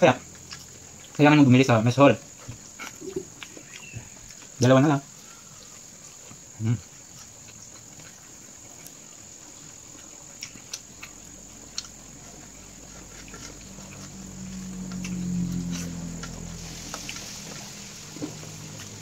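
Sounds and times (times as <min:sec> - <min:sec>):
chewing: 0:00.0 - 0:19.0
steady high hiss: 0:08.8 - 0:19.0
low droning hum: 0:10.8 - 0:19.0.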